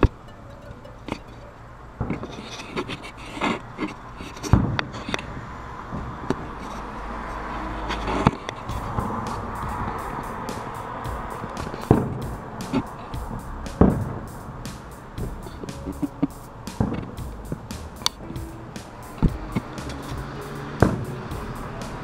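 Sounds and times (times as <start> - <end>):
fireworks bursting: 8.7 - 15.2.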